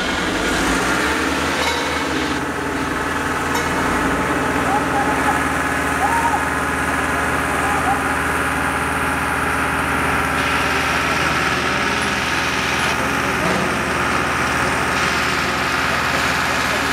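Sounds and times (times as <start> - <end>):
engine running steadily: 0.0 - 16.9.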